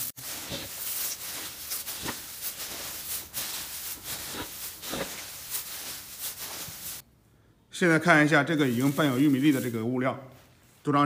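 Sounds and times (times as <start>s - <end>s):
straw and kernels stirred in metal basin: 0.0s - 7.0s, 8.6s - 9.8s.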